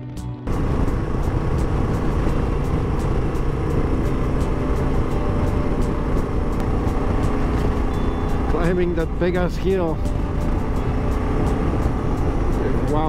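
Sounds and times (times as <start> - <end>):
wind noise: 0.4 - 13.0
motorcycle engine under load: 0.5 - 9.3.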